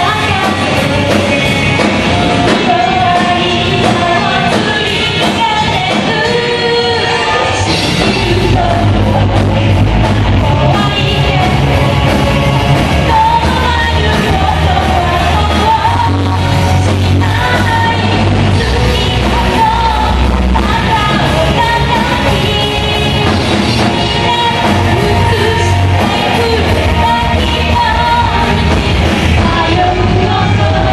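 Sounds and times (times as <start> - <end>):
live rock band playing: 0.0 - 30.9
person singing: 0.0 - 30.9.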